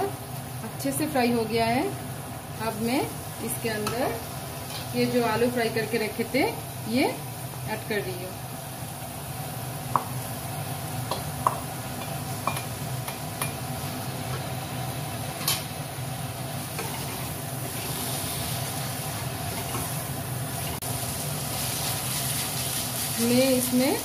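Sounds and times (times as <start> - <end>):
food sizzling in pan: 0.0 - 24.0.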